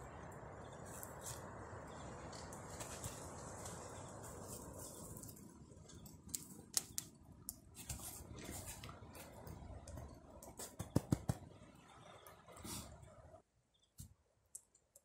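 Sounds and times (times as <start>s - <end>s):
campfire crackling and popping: 0.0s - 12.5s.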